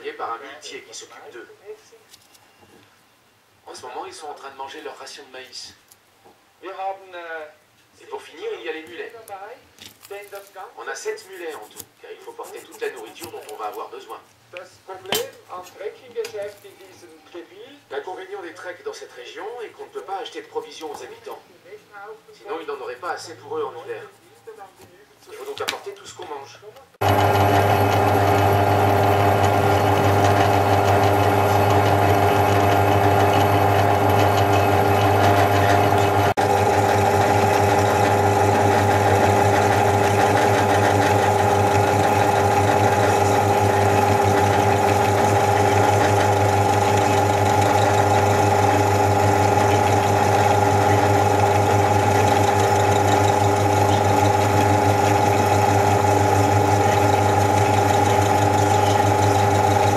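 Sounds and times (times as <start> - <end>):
drill press drilling metal: 27.0 - 59.9.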